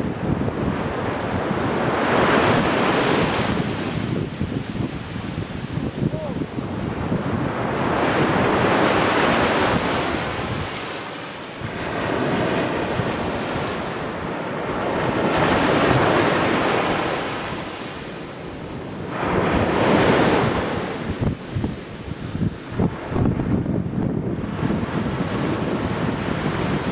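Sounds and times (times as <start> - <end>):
sea waves breaking on beach: 0.0 - 26.9.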